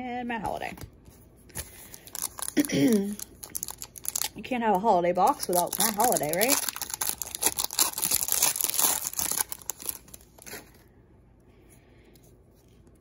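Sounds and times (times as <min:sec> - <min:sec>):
plastic wrapper tearing and crinkling: 0:01.5 - 0:04.4, 0:05.2 - 0:10.8.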